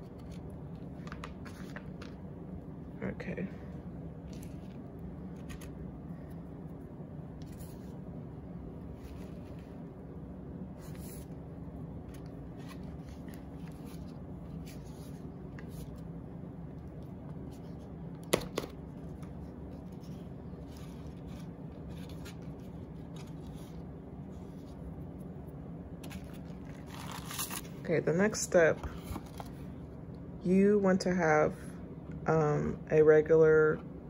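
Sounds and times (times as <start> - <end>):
low steady hum: 0.0 - 34.0.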